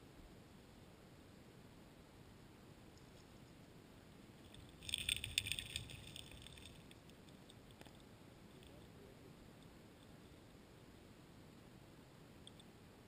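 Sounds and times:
underwater clicking and rattling: 4.5s - 8.0s.

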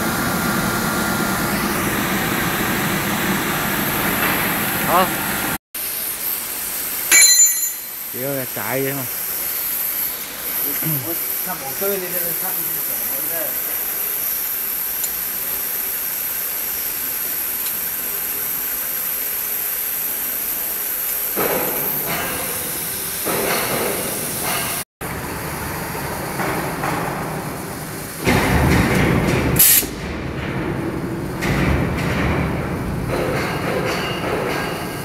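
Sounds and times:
electric motor hiss: 7.8s - 23.3s.

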